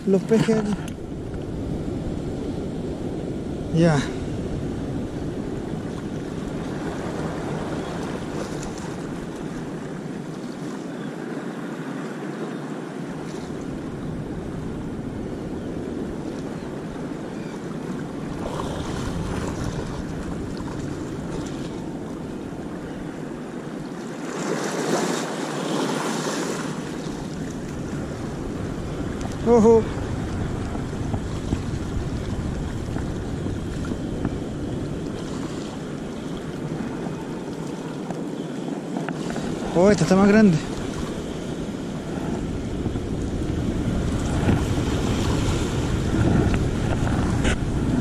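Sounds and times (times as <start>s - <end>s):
wind buffeting microphone: 0.0s - 11.0s, 13.0s - 24.0s, 26.4s - 48.0s
sea waves washing onto beach: 0.0s - 48.0s.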